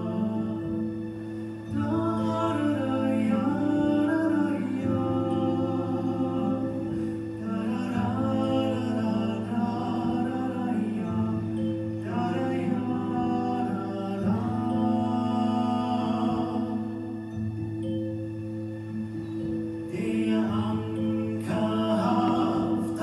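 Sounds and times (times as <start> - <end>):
low drone notes: 0.0 - 23.0
person singing with wavering pitch: 0.0 - 23.0.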